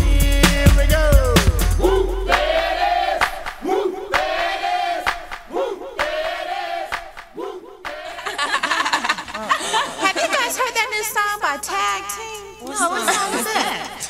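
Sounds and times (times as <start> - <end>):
hip-hop beat: 0.0 - 8.2
group of voices shouting: 1.8 - 8.2.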